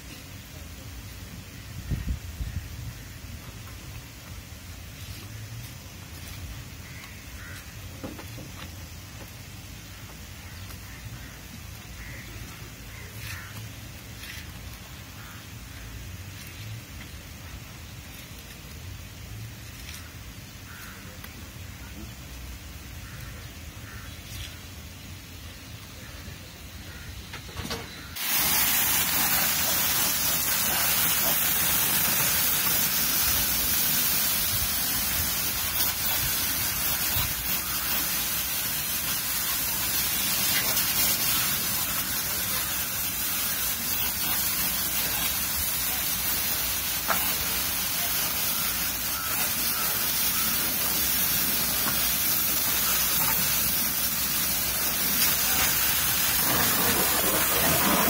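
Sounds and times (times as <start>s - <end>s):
hose spraying water: 0.0s - 58.0s
water spattering off car: 28.2s - 58.0s.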